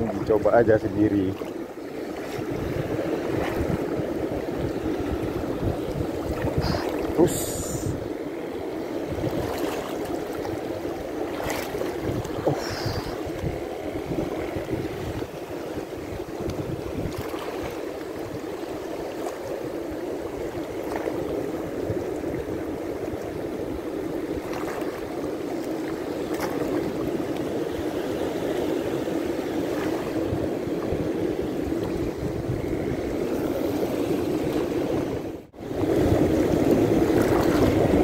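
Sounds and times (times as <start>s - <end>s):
wind blowing on microphone: 0.0s - 8.2s, 8.8s - 25.4s, 26.5s - 38.0s
sea water lapping over rocks: 0.0s - 38.0s.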